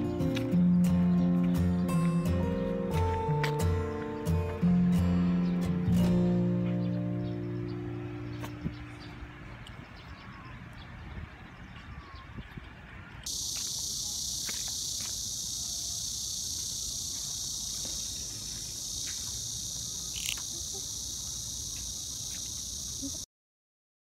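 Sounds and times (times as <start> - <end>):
cicadas buzzing: 13.2 - 23.3.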